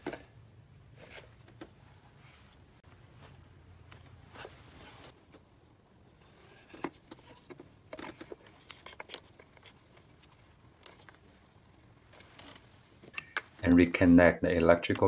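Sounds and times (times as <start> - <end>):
fabric rustle: 1.0 - 5.2.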